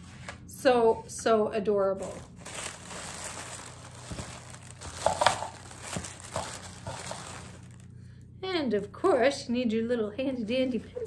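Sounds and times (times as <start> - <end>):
packaging crinkling and rustling: 2.0 - 7.9.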